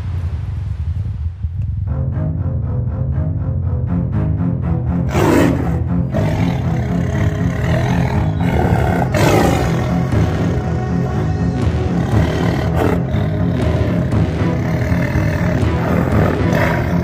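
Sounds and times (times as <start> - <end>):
horror score pulsing rhythm: 1.2 - 17.0
monster roars: 5.1 - 17.0.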